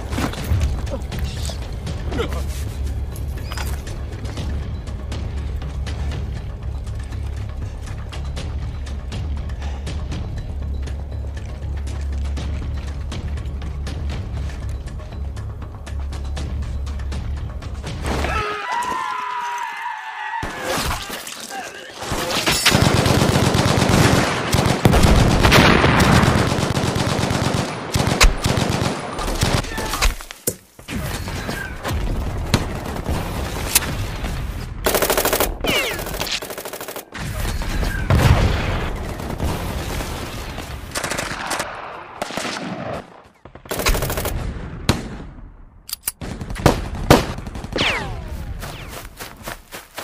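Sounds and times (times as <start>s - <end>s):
loud gunshots: 22.1s - 29.9s, 46.2s - 48.2s
machine-gun bursts: 34.9s - 37.1s, 43.7s - 44.3s.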